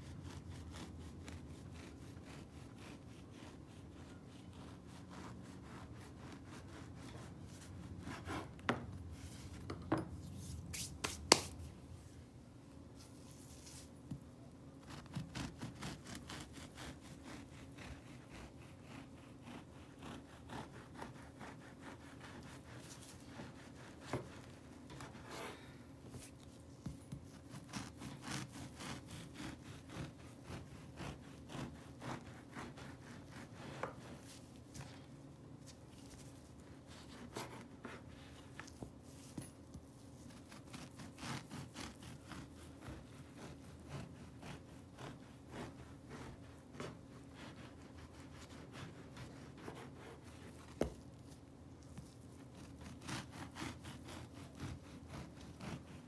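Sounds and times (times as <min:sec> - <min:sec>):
bread knife sawing through crust: 0:00.0 - 0:08.5, 0:14.9 - 0:25.5, 0:27.4 - 0:34.2, 0:40.3 - 0:50.8, 0:52.5 - 0:56.0.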